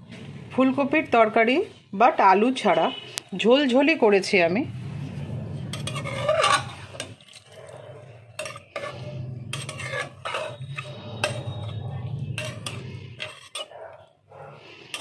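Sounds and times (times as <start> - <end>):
spatula scraping metal pot: 4.7 - 15.0.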